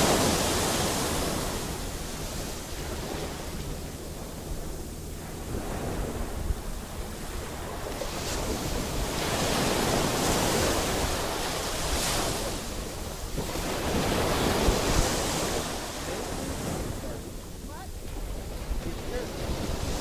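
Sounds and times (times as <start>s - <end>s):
surf washing onto beach: 0.0s - 20.0s
wind buffeting microphone: 0.0s - 20.0s.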